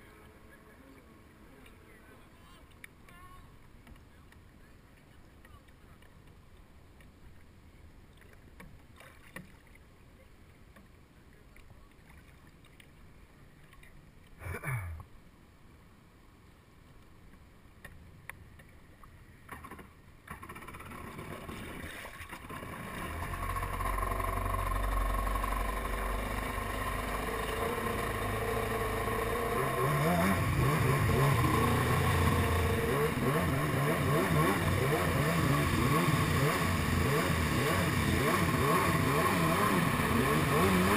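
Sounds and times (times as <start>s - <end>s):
jet ski engine revving: 20.4s - 40.9s.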